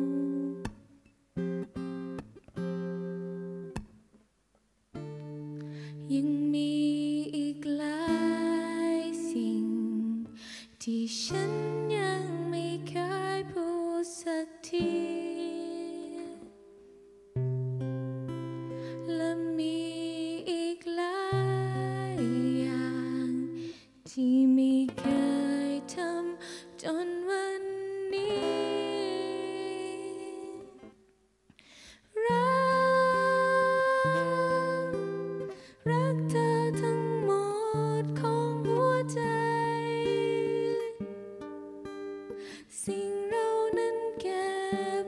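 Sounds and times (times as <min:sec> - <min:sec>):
young woman singing: 0:00.0 - 0:00.9, 0:05.7 - 0:16.6, 0:18.8 - 0:31.0, 0:32.1 - 0:41.1, 0:42.3 - 0:45.0
acoustic guitar: 0:00.0 - 0:45.0.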